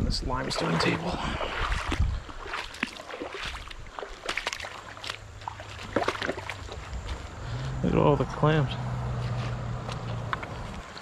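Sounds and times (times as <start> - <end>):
river water over rocks: 0.4 - 7.5.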